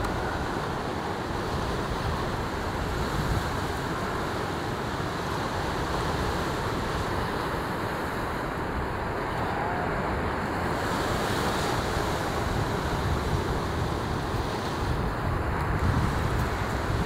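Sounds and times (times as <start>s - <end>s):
ocean surf: 0.0s - 17.0s
wind rumbling on microphone: 0.0s - 17.0s.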